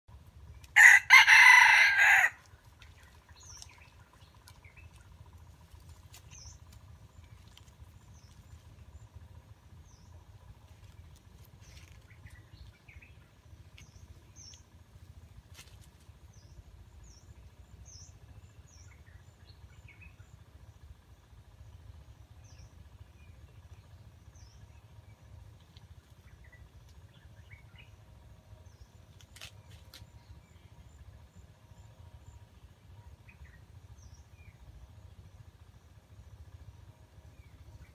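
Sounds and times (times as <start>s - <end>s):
rooster crowing: 0.8s - 2.5s
small birds chirping: 2.5s - 20.6s.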